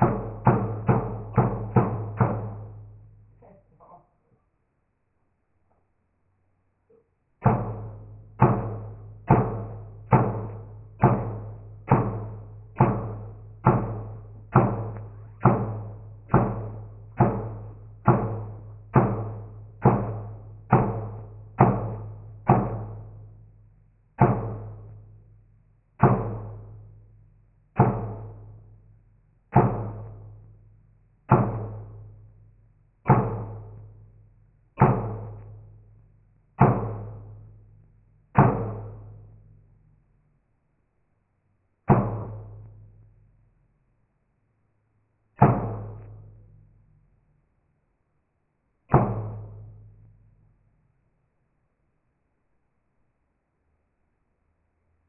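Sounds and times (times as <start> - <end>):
bass drum hits with echo: 0.0 - 3.1, 7.4 - 23.4, 24.2 - 24.9, 26.0 - 27.0, 27.8 - 28.8, 29.5 - 30.4, 31.3 - 32.2, 33.1 - 34.0, 34.8 - 35.8, 36.6 - 37.6, 38.4 - 39.6, 41.9 - 43.0, 45.4 - 46.7, 48.9 - 50.0.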